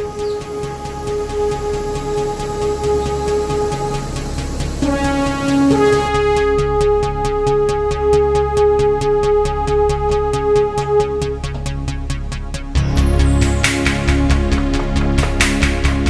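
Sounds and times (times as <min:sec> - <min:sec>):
held synth note: 0:00.0 - 0:11.7
fast ticking beat: 0:00.0 - 0:11.8
electronic background music: 0:00.0 - 0:16.0
low bass line: 0:00.0 - 0:16.0.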